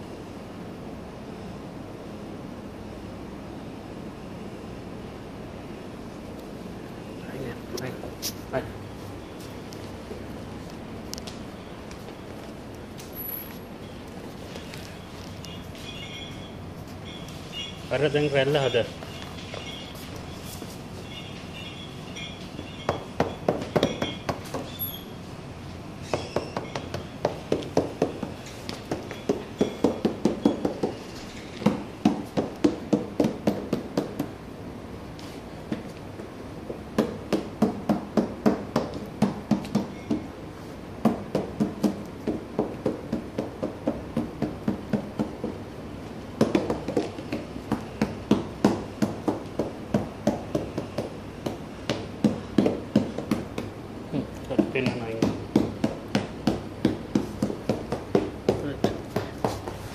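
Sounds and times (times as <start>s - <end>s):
hands thumping rubber mats: 26.2s - 34.4s, 35.7s - 40.3s, 41.0s - 45.6s, 46.4s - 53.8s, 54.5s - 59.9s.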